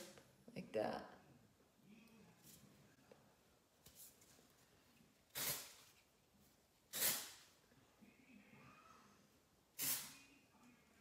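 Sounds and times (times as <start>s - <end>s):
aerosol can spraying: 5.3s - 5.8s, 6.9s - 7.4s, 9.8s - 10.2s.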